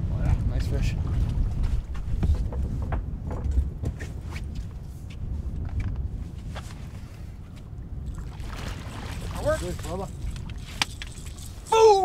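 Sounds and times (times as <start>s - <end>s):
wind buffeting microphone: 0.0s - 12.0s
water splashing: 8.1s - 11.8s.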